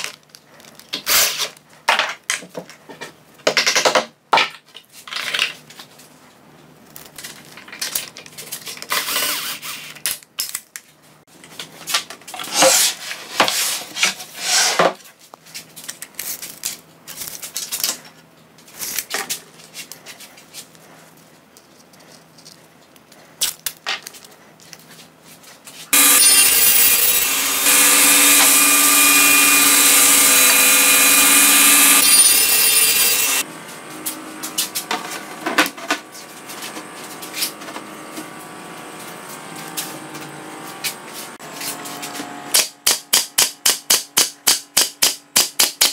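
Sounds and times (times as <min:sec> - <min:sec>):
power tool motor running: 0:26.0 - 0:33.5.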